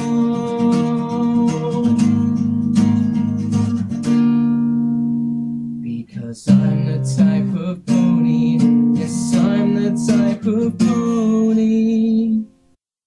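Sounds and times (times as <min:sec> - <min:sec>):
pop song with strummed guitar: 0:00.0 - 0:12.6.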